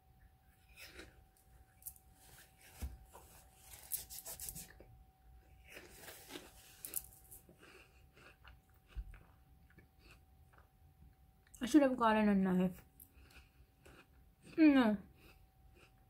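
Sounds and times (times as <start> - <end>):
person chewing food: 0.6 - 1.7, 5.5 - 11.5, 12.9 - 16.0.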